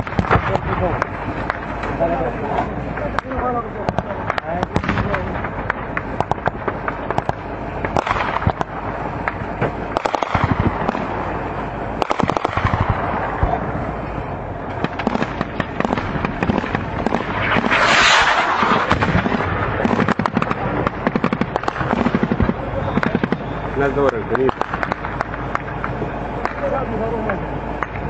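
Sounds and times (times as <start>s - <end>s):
loud rushing noise: 0.0s - 28.0s
gunfire bursts: 3.8s - 11.4s, 12.0s - 13.7s, 14.8s - 23.6s, 24.4s - 25.9s.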